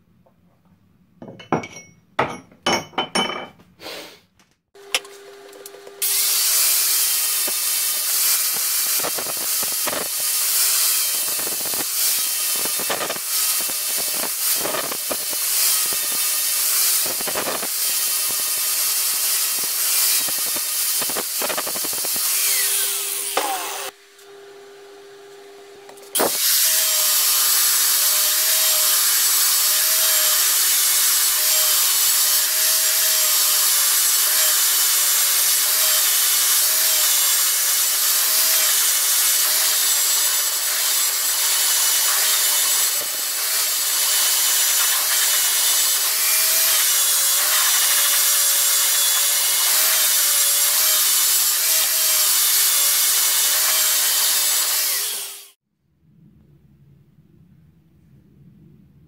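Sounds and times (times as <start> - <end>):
angle grinder on metal: 6.0 - 24.0, 26.0 - 55.6.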